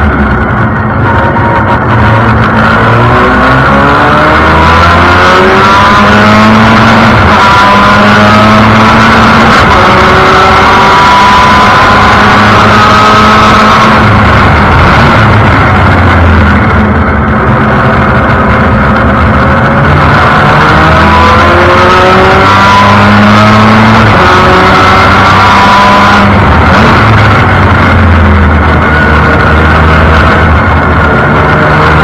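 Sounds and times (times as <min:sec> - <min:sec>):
race car engine running hard: 0:00.0 - 0:32.0.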